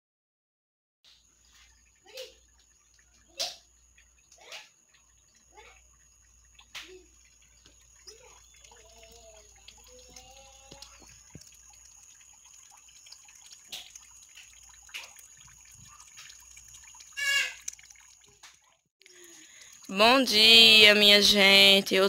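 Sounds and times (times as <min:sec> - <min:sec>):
faint outdoor ambience: 0:01.1 - 0:22.0
water dripping: 0:01.1 - 0:22.0
faint wavering calls: 0:01.6 - 0:11.4.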